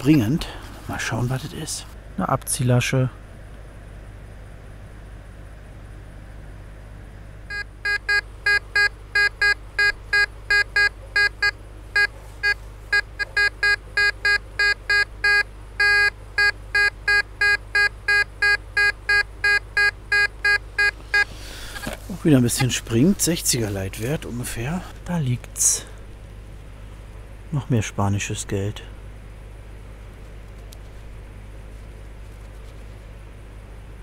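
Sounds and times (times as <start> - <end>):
metal detector beeps: 7.5 - 21.3.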